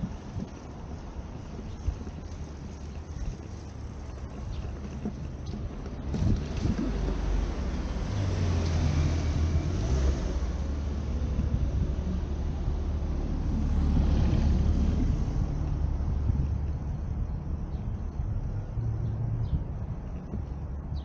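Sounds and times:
traffic engine rumble: 0.0 - 21.0
tyre noise: 0.0 - 21.0.

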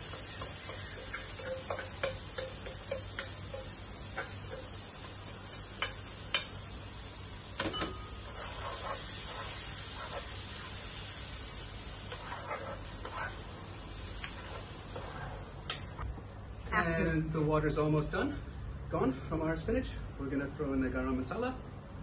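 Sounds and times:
spatula knocking against pan: 0.0 - 6.5
vegetables sizzling in a frying pan: 0.0 - 15.9.

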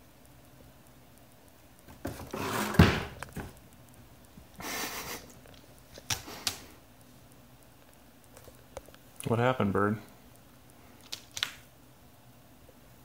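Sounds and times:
cardboard box thudding on floor: 2.0 - 3.5
rustling scrape: 2.1 - 3.0.

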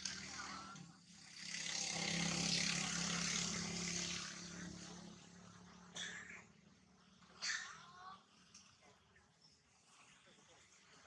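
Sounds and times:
vehicle passing by: 0.0 - 6.0.

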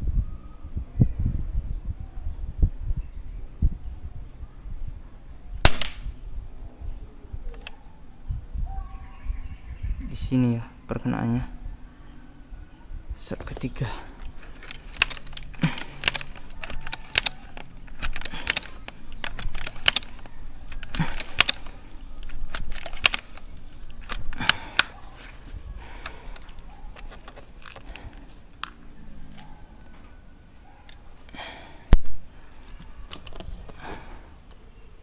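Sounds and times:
handling clicks: 13.3 - 30.1, 30.8 - 34.6
air rifle pump strokes clacking: 14.4 - 25.0.

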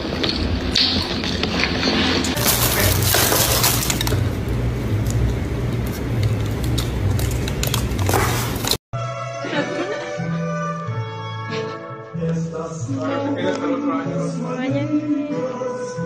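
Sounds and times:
paper wrapper crinkling: 2.4 - 4.3, 5.8 - 8.8.

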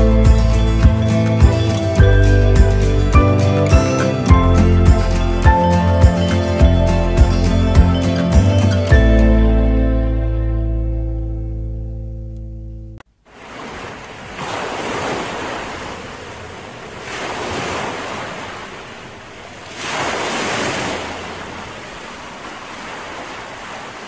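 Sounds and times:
sea waves washing onto shore: 13.2 - 24.0.

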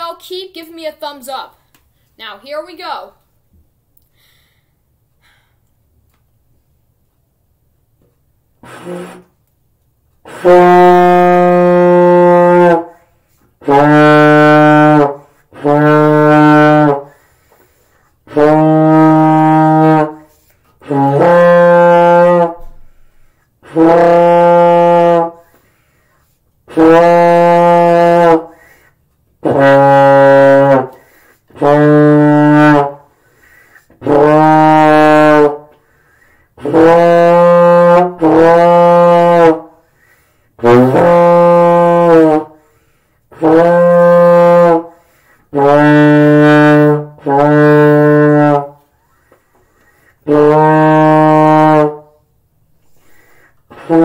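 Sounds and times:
player breathing: 4.1 - 5.8, 17.1 - 18.2, 22.8 - 23.6, 25.4 - 26.5, 28.5 - 29.1, 30.9 - 31.5, 33.1 - 34.0, 35.8 - 36.6, 39.8 - 40.6, 42.6 - 43.3, 44.9 - 45.5, 48.9 - 50.3, 52.8 - 53.7.

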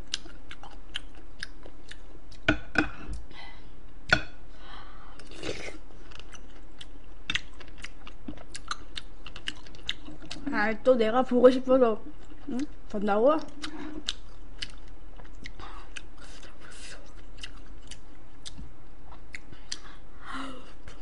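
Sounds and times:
chewing and mouth sounds: 0.0 - 3.3, 5.2 - 10.5, 12.1 - 20.0.

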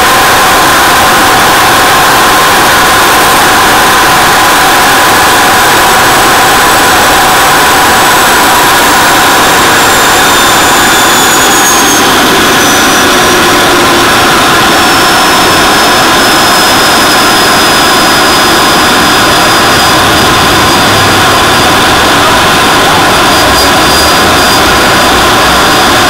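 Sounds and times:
small jet engine rushing: 0.0 - 26.0.

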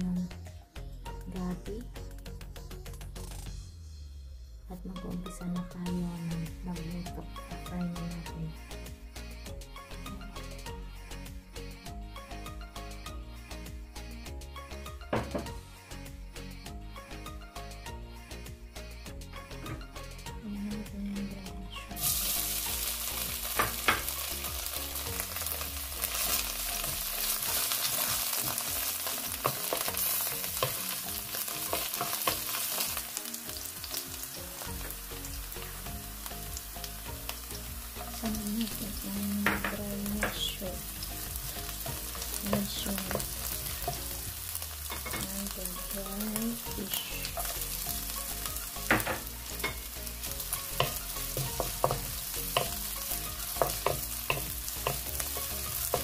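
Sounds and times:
wooden spatula knocking on pan: 15.1 - 15.5, 23.6 - 24.2, 39.4 - 40.5, 48.9 - 49.3, 50.8 - 52.8, 53.5 - 55.4
mushrooms sizzling in hot oil: 21.9 - 56.0.

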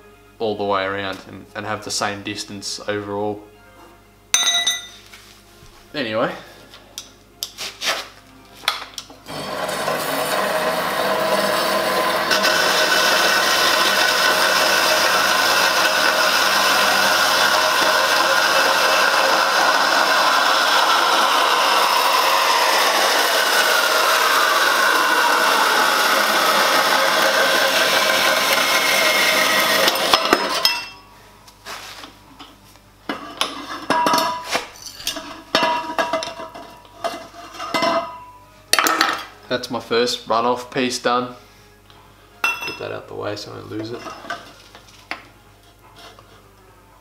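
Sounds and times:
band saw cutting metal tube: 9.3 - 30.7.

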